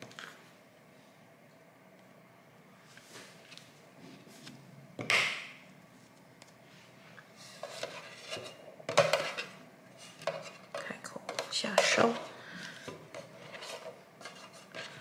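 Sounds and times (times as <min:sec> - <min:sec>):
kitchenware clattering: 0:07.6 - 0:09.6.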